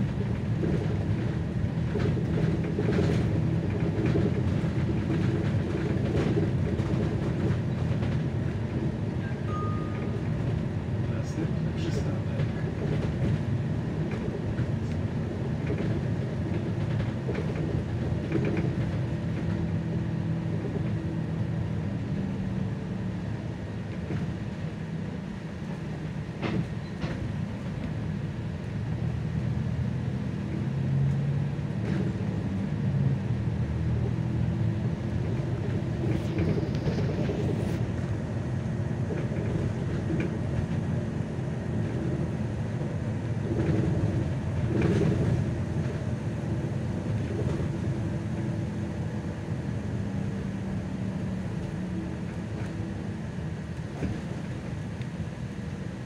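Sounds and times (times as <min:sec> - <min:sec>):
rattles and clicks: 0:00.0 - 0:08.8, 0:15.6 - 0:19.6, 0:43.4 - 0:46.0
bus engine and road rumble: 0:00.0 - 0:56.0.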